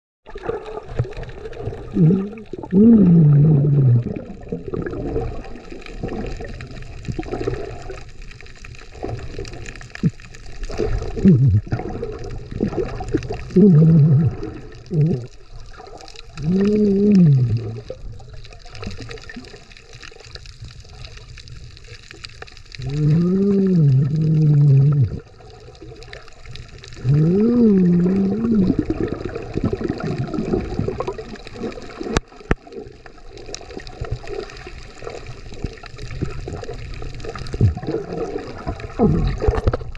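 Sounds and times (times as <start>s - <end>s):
water sloshing and bubbling: 0.2s - 39.9s
muffled voice through snorkel: 1.8s - 5.2s, 10.8s - 12.0s, 12.6s - 15.5s, 16.3s - 19.2s, 22.8s - 25.3s, 27.0s - 30.9s, 37.6s - 39.8s.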